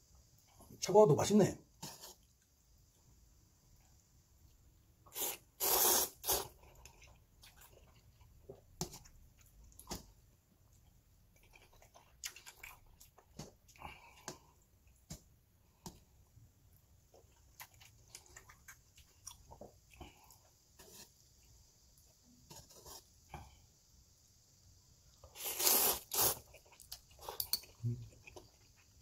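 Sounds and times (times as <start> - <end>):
man slurping noodles: 5.1 - 6.5, 25.4 - 26.5
wet chewing: 5.2 - 15.2, 17.1 - 20.4, 25.3 - 29.0.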